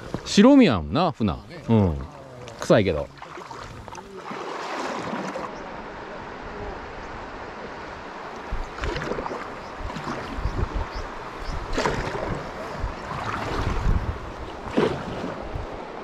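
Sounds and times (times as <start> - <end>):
paddle splashing in water: 1.6 - 5.6, 8.3 - 16.0
wind rumble on microphone: 6.4 - 16.0.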